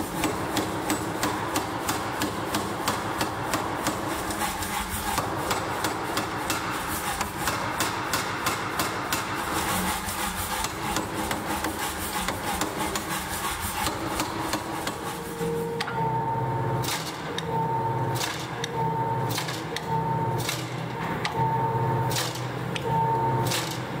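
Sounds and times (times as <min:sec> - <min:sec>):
power hammer striking hot steel: 0:00.1 - 0:09.5
machine humming tone: 0:13.7 - 0:24.0.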